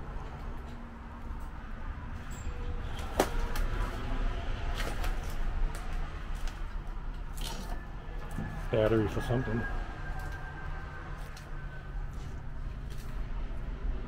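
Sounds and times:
footsteps and small knocks: 0.0s - 4.1s.

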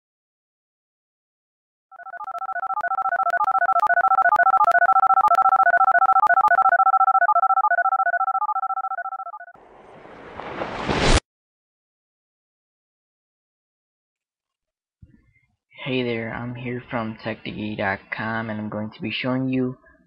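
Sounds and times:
rising whoosh: 9.6s - 11.2s.

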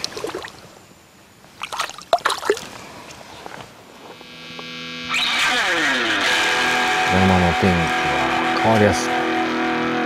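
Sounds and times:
water splashing and trickling: 0.0s - 0.7s, 1.6s - 2.8s
music: 4.3s - 10.0s.

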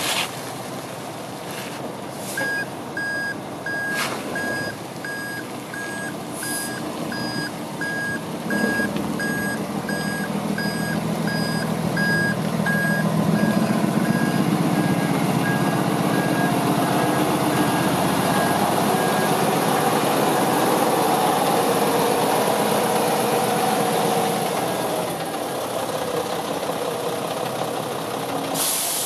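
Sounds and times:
diesel engine idling: 0.5s - 29.0s
reversing alarm beeping: 2.4s - 19.4s
air hiss: 28.6s - 29.0s.

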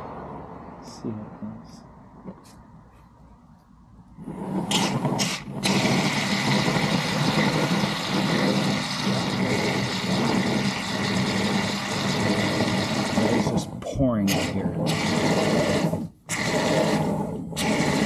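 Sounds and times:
aerosol can spraying: 4.4s - 13.6s.

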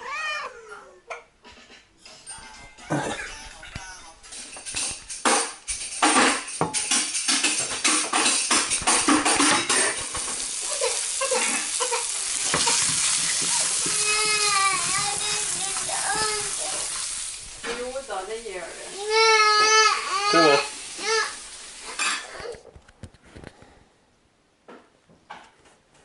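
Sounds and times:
sausages sizzling in a frying pan: 5.1s - 22.6s
child calling out: 13.9s - 16.9s, 18.9s - 21.4s.

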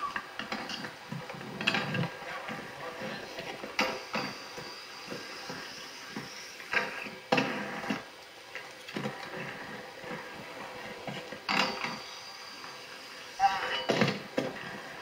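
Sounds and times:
inline skate wheels rolling: 0.0s - 15.0s
skate knocks and scrapes: 6.2s - 8.0s.

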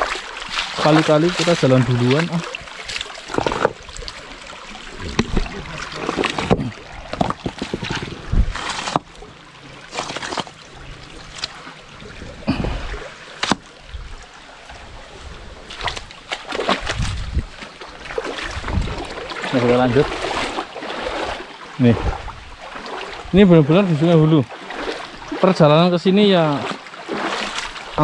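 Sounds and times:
footsteps on river stones: 0.0s - 11.8s, 14.6s - 21.5s, 22.6s - 28.0s
rushing water: 0.0s - 28.0s
wind on microphone: 4.9s - 8.7s, 16.7s - 19.3s, 21.1s - 23.5s.

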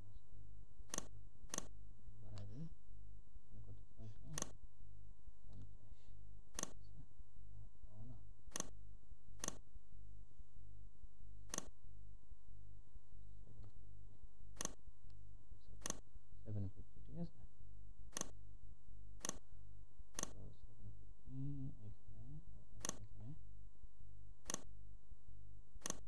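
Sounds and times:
steady low hum: 0.0s - 26.0s
computer mouse clicking: 0.9s - 1.7s, 4.3s - 4.6s, 6.5s - 6.8s, 8.5s - 8.7s, 9.4s - 9.6s, 11.5s - 11.7s, 14.6s - 14.8s, 15.8s - 16.0s, 18.1s - 18.4s, 19.2s - 19.4s, 20.2s - 20.4s, 22.8s - 23.0s, 24.4s - 24.7s, 25.8s - 26.0s.

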